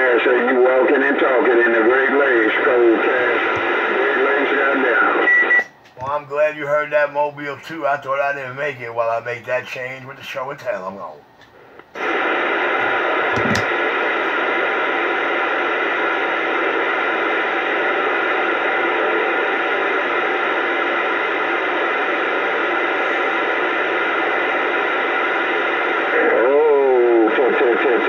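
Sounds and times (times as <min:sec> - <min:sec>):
echoing voice on radio: 0:00.0 - 0:05.2, 0:26.0 - 0:28.0
radio static hiss: 0:00.0 - 0:28.0.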